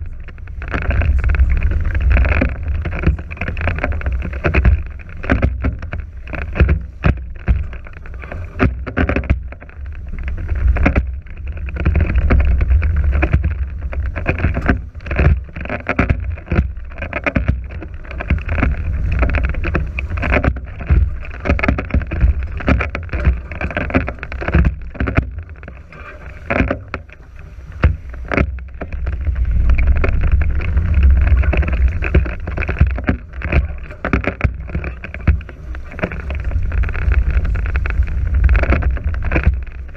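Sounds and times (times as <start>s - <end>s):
water splashing along hulls: 0.0s - 39.9s
wind buffeting microphone: 0.0s - 39.9s.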